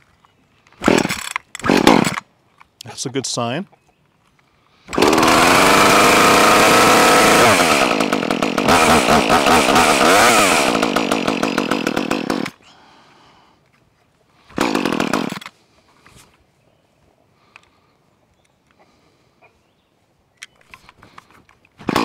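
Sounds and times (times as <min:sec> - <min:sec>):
chainsaw engine revving: 0:00.8 - 0:02.2, 0:04.9 - 0:12.6, 0:14.5 - 0:15.5, 0:21.8 - 0:22.0.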